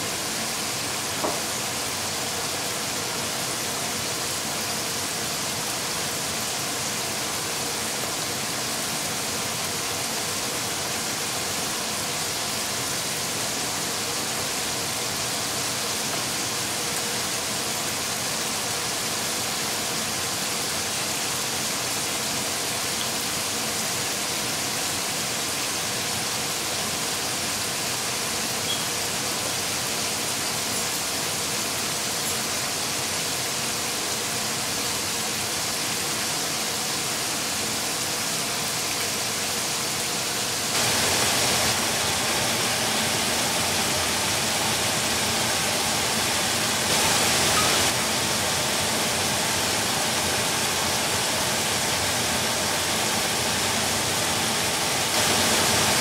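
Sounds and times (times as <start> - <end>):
steady hiss: 0.0 - 56.0.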